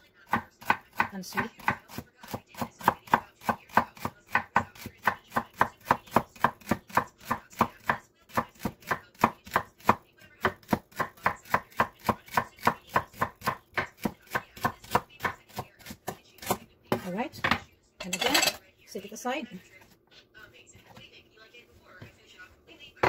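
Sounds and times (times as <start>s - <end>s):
knife chopping celery on board: 0.3s - 17.2s.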